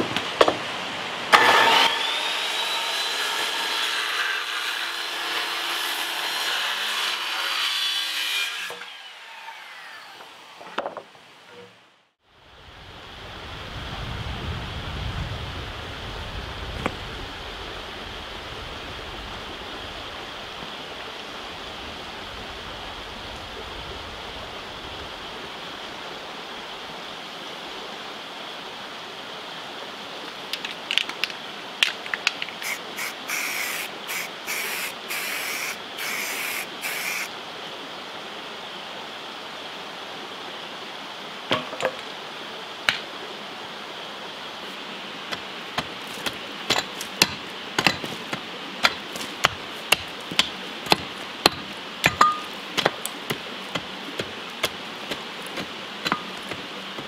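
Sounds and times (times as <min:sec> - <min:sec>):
outdoor hiss: 0:00.0 - 0:57.0
hand tool rasping on wood: 0:45.3 - 0:52.2, 0:52.8 - 0:57.0
digging tool striking rocky soil: 0:45.3 - 0:57.0.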